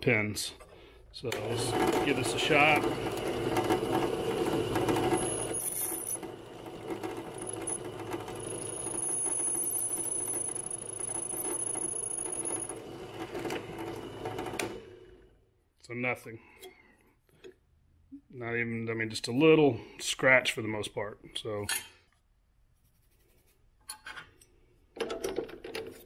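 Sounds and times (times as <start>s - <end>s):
drill press running: 0.7s - 15.4s.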